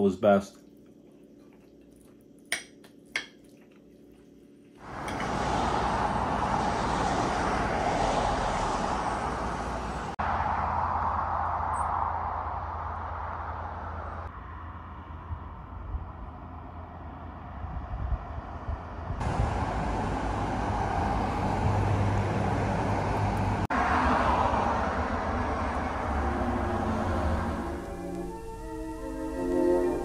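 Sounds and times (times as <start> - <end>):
road traffic going by: 4.8 - 30.0
low rumble: 5.5 - 29.3
organ-like music: 26.0 - 30.0.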